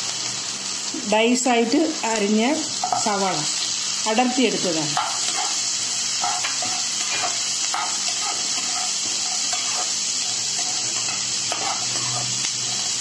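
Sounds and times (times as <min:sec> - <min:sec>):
onions sizzling in oil: 0:00.0 - 0:13.0
metal spatula scraping pan: 0:05.0 - 0:13.0.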